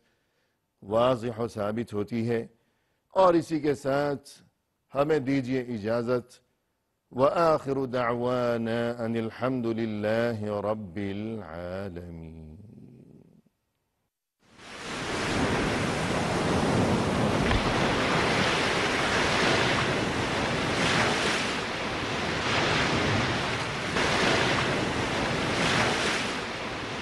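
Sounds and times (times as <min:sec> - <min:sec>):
ocean waves washing in: 0:14.5 - 0:27.0.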